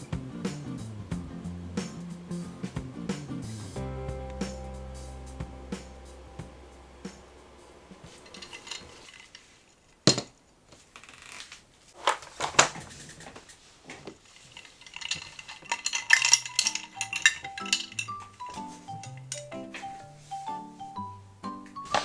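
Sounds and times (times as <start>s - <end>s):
light melodic music: 0.0s - 9.0s, 16.0s - 22.0s
ice clinking in glass: 14.9s - 19.5s.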